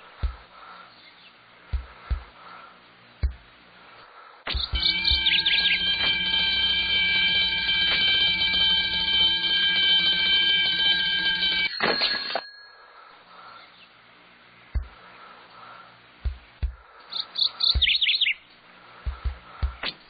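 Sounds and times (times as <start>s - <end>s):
alarm clock ringing: 4.6s - 13.0s.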